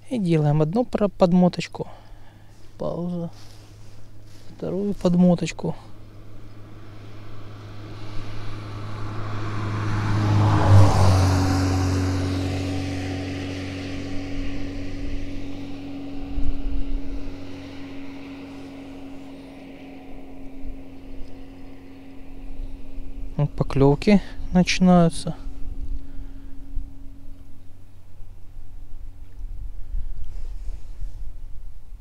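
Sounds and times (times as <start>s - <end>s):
motor passing by: 1.9s - 32.0s.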